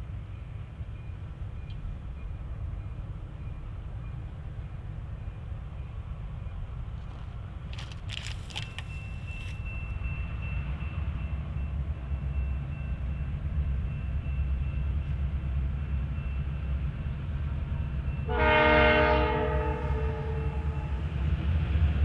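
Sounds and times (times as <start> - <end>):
diesel locomotives rumbling: 0.0 - 22.0
locomotive horn chord: 18.3 - 21.0.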